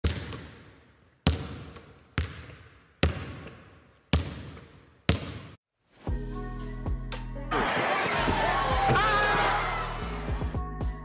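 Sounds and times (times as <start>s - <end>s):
basketball bouncing on hard floor: 0.0s - 5.6s.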